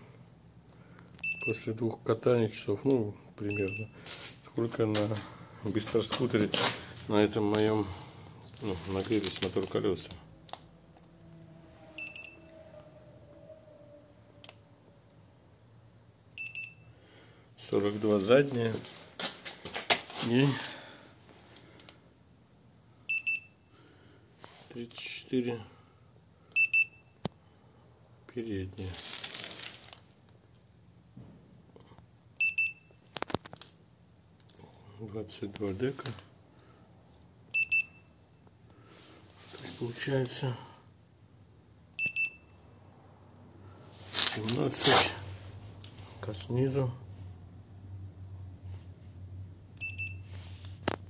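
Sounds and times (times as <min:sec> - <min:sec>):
thermometer short beeps: 0:01.2 - 0:01.6, 0:03.5 - 0:03.9, 0:12.0 - 0:12.5, 0:16.4 - 0:16.9, 0:42.0 - 0:42.6, 0:49.8 - 0:50.3
handling rustle: 0:04.0 - 0:07.7, 0:08.4 - 0:10.0, 0:18.0 - 0:20.8, 0:28.9 - 0:30.2, 0:44.0 - 0:45.2
thermometer short high beeps: 0:12.0 - 0:12.5.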